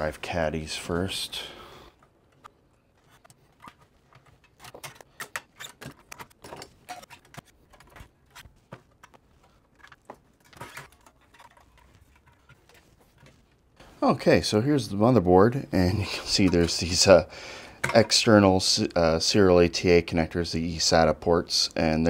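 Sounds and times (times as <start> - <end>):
metal clicks and rattles: 2.0 - 13.4.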